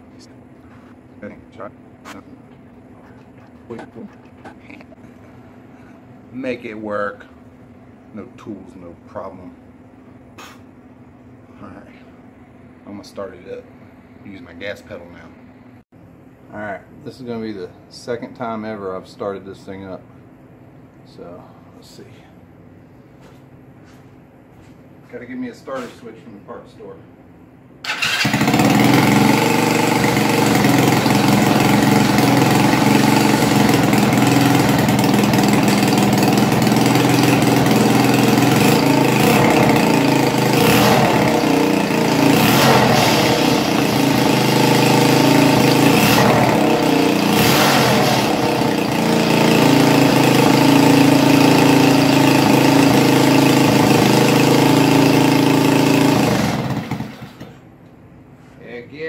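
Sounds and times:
go-kart engine revving: 27.8s - 57.6s.

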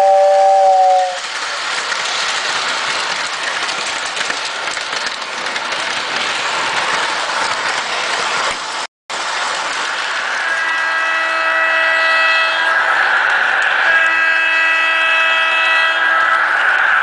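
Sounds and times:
two-tone steam whistle: 0.0s - 1.2s, 10.3s - 17.0s
model train running on track: 0.0s - 17.0s.

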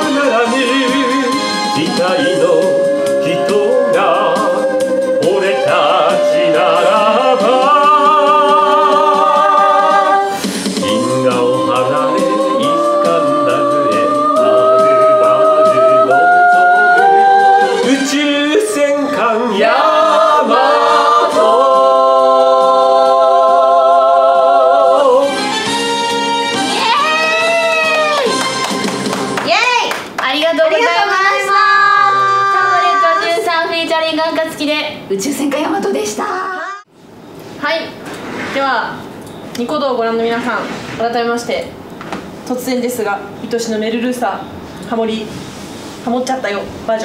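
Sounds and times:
voices singing in harmony: 0.0s - 26.7s, 30.8s - 33.5s.

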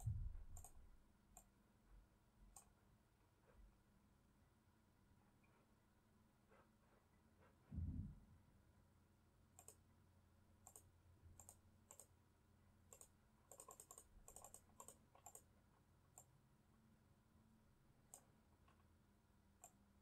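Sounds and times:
computer mouse clicking: 0.0s - 0.8s, 2.5s - 2.8s, 9.6s - 9.8s, 10.6s - 12.2s, 12.9s - 15.5s, 16.1s - 16.3s, 18.1s - 18.9s, 19.6s - 19.8s
low thump: 7.7s - 8.3s.

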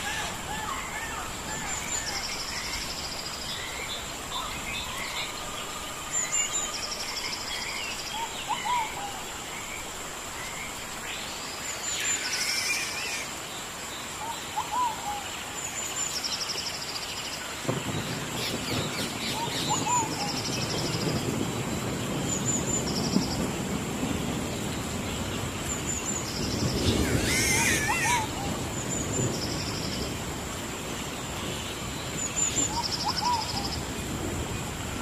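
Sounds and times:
faint hiss: 0.0s - 27.5s
birds chirping and calling: 25.8s - 29.9s.

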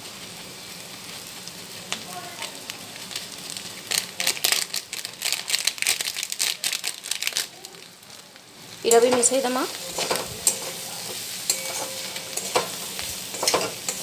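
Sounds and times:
vegetables sizzling in a pan: 0.0s - 14.0s
loud crackles and rustles: 0.2s - 8.9s.

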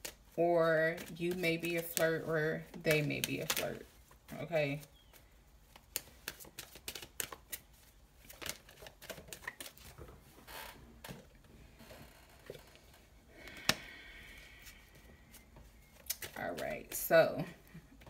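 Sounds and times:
soft rustle: 14.2s - 17.8s.

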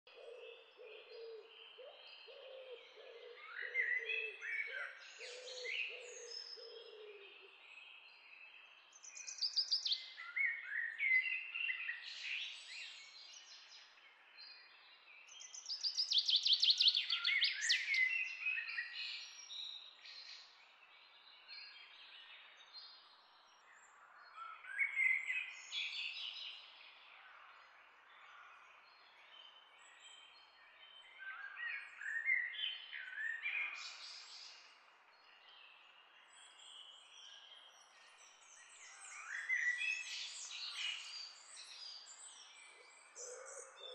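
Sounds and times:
low repeated cooing: 0.1s - 7.4s, 43.2s - 43.9s.

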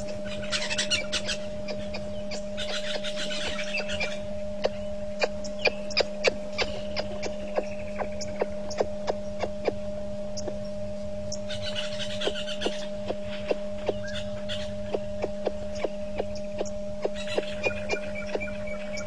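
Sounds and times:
electrical mains hum: 0.0s - 19.0s
faint high chirping: 0.0s - 19.0s.

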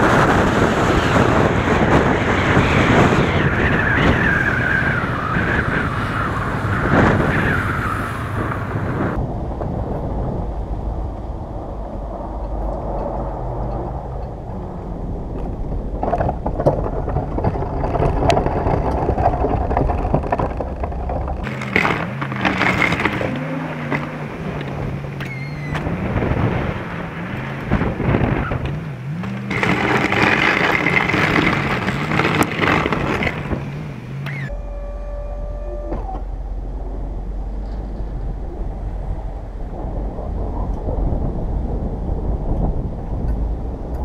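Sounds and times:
pickup truck engine: 0.0s - 44.0s
wind rumbling on microphone: 0.0s - 44.0s
steady rough noise: 27.7s - 34.7s.

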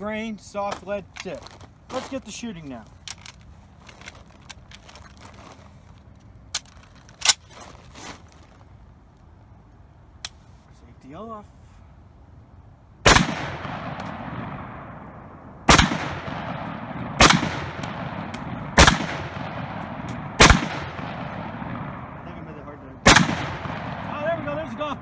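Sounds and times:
rifle shots echoing: 13.0s - 25.0s.

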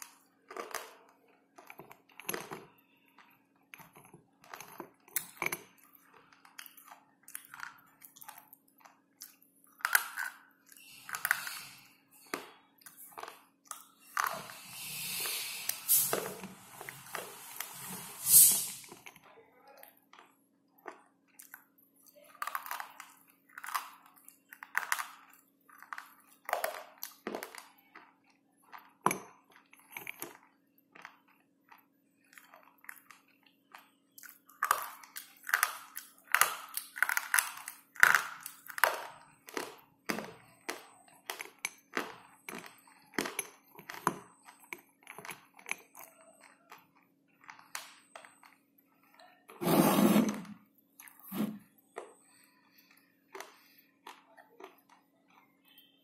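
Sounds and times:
pencil crunching as chewed: 3.8s - 18.0s.

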